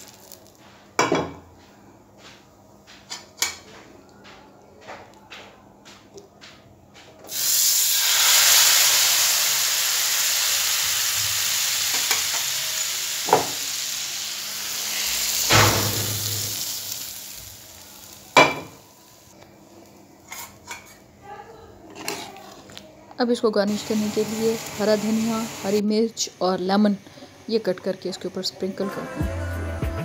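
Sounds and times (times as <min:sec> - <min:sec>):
hot oil sizzling: 0:00.0 - 0:00.6, 0:07.3 - 0:19.4, 0:23.7 - 0:27.8.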